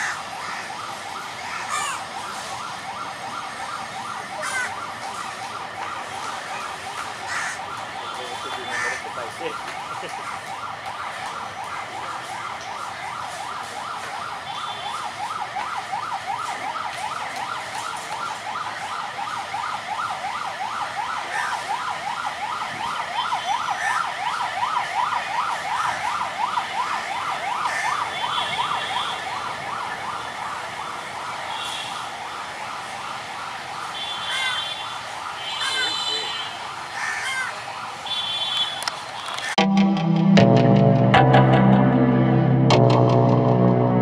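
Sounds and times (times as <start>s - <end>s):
electronic siren yelping: 0.0s - 18.6s.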